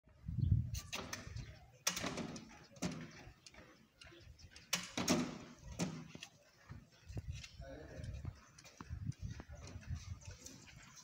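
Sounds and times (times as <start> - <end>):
door hardware clicks and knocks: 1.0 - 3.3, 4.5 - 6.2.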